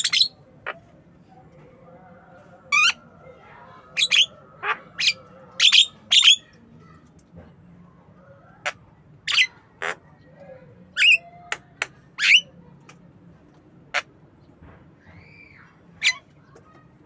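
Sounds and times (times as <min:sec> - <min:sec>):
bird squawking calls: 0:00.0 - 0:00.9, 0:04.0 - 0:06.5.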